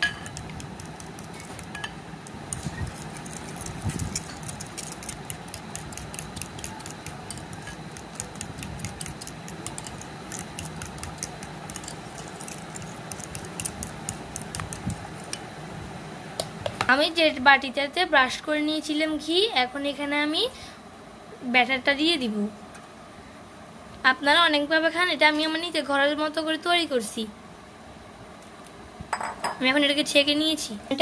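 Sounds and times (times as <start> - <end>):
whisk clicking against glass bowl: 2.5 - 15.4.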